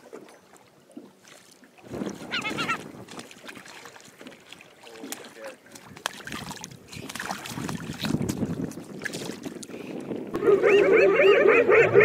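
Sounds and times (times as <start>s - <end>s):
water noise: 0.0s - 12.0s
wind noise on microphone: 1.8s - 3.3s, 5.8s - 12.0s
hyenas yelping: 10.4s - 12.0s.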